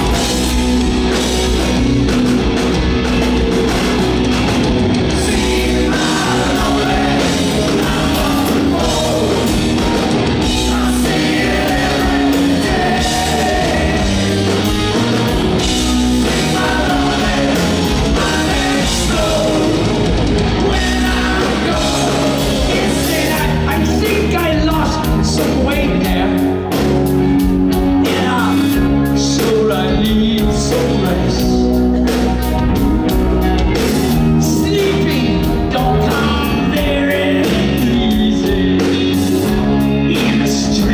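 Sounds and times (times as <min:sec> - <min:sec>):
live rock band playing: 0:00.0 - 0:40.9
man singing: 0:05.1 - 0:14.7, 0:16.1 - 0:26.6, 0:28.0 - 0:31.8, 0:34.4 - 0:40.9.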